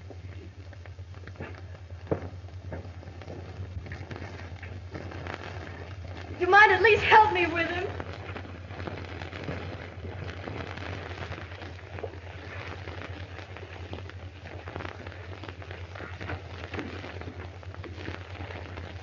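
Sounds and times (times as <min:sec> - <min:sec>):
faint crackles and clicks: 0:00.0 - 0:19.0
film soundtrack hiss: 0:00.0 - 0:19.0
low hum: 0:00.0 - 0:19.0.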